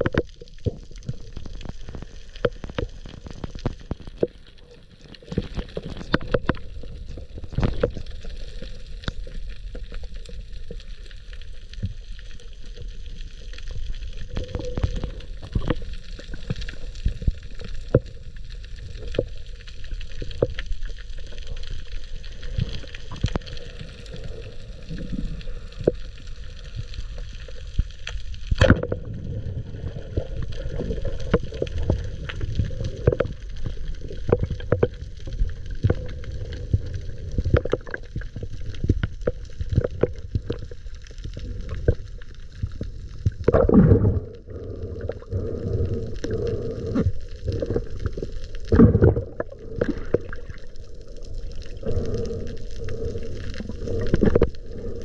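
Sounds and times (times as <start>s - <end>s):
underwater clicks and knocks: 0.0s - 4.4s, 5.2s - 6.8s, 7.4s - 8.1s, 28.5s - 29.1s, 31.2s - 36.2s, 36.8s - 40.6s, 42.7s - 44.3s, 48.7s - 50.6s
low underwater noise: 0.0s - 55.0s
rushes of water: 0.0s - 55.0s.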